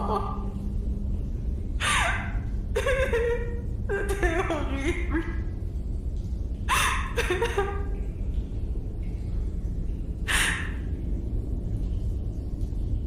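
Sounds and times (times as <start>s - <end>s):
low cave rumble: 0.0s - 13.0s
person breathing and whimpering: 1.8s - 2.3s, 10.3s - 10.8s.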